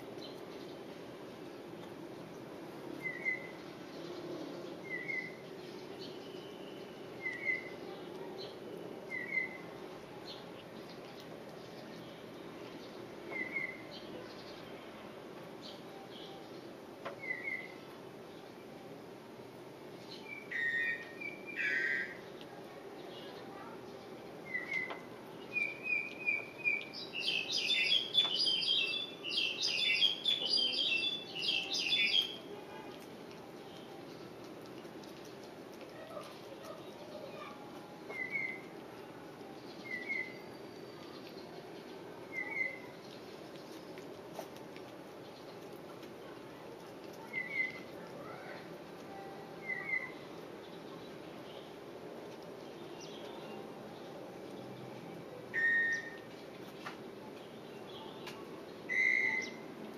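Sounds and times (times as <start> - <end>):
low background noise: 0.0 - 59.9
steady background noise: 0.0 - 59.9
bird whistling: 20.4 - 22.1, 49.6 - 50.2, 55.5 - 56.2, 58.9 - 59.6
bird two-note chirp: 55.6 - 56.2.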